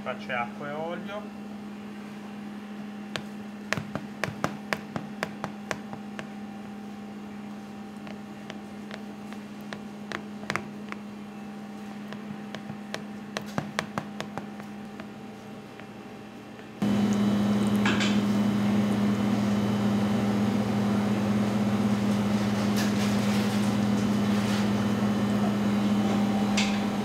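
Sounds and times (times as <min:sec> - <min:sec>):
low kitchen hum: 0:00.0 - 0:27.0
fingertips clicking in dough: 0:03.2 - 0:06.3, 0:08.0 - 0:11.1, 0:12.1 - 0:15.9.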